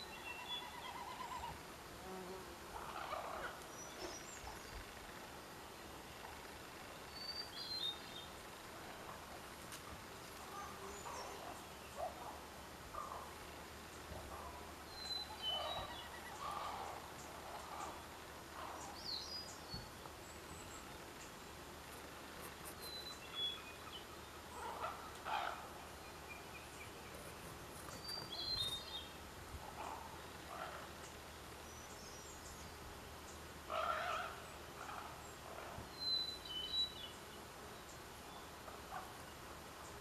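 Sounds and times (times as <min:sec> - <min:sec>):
small birds chirping: 0:02.2 - 0:40.0
ravens calling: 0:15.5 - 0:19.0, 0:24.5 - 0:26.0, 0:33.6 - 0:35.8.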